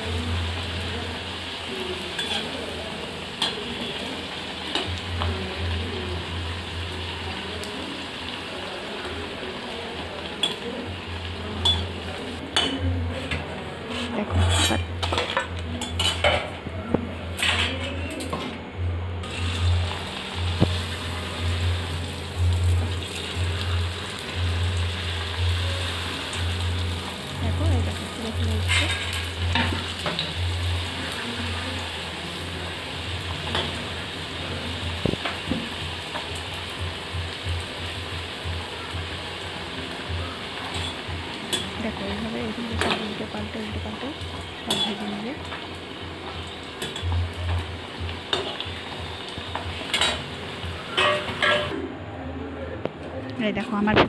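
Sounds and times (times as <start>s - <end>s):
food sizzling in oil: 0.0s - 13.3s, 19.2s - 51.8s
metal spoon scraping and clinking: 12.6s - 16.4s, 28.6s - 30.2s.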